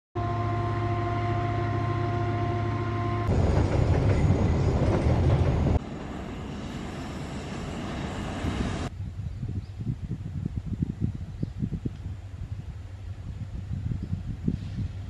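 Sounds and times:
diesel locomotive engine whine: 0.2 - 9.0
loaded wagons rumbling past: 3.3 - 8.9.

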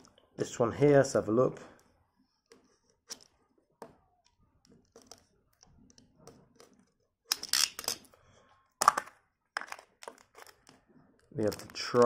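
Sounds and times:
plastic clicks and rustling: 8.8 - 12.0.

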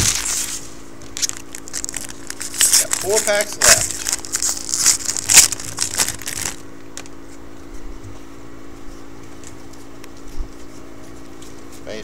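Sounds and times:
foil wrapper crinkling: 0.0 - 7.4
low hum: 0.0 - 11.8.

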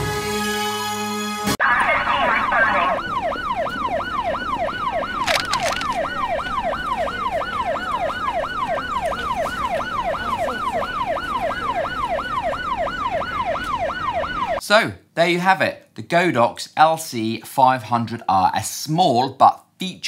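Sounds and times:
siren yelping: 1.6 - 14.6.

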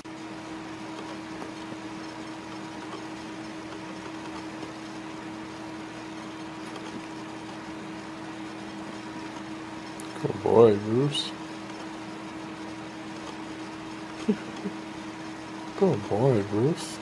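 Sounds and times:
machine hum with low tone: 0.0 - 17.0.

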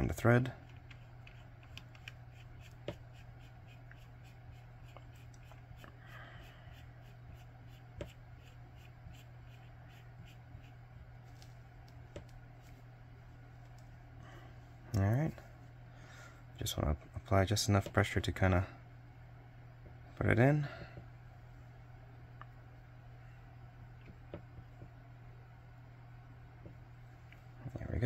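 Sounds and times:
fingertips rubbing lens: 0.8 - 10.8.

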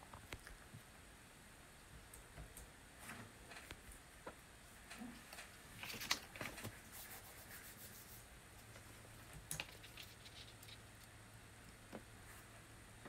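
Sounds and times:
paper rustling: 5.4 - 8.0, 9.6 - 10.8.

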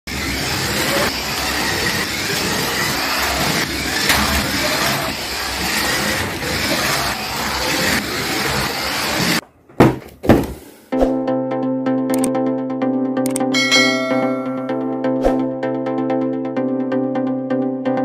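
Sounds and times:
toy car motors whining: 0.1 - 9.4
wheels rushing on wooden floor: 0.1 - 10.9.

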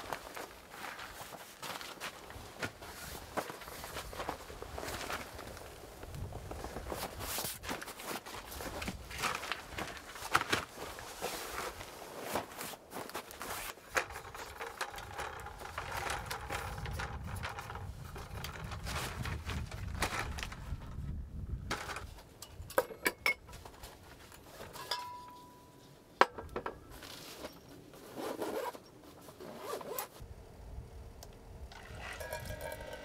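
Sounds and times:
fabric rubbing and rustling: 0.0 - 21.1, 26.9 - 30.2.

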